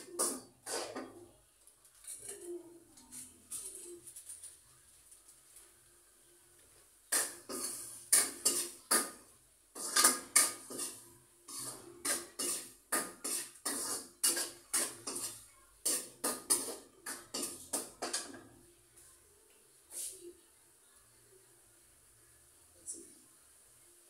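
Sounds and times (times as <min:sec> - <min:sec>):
metal utensil scraping a pot: 0:00.0 - 0:01.3, 0:02.0 - 0:04.4, 0:07.1 - 0:09.2, 0:09.8 - 0:18.5.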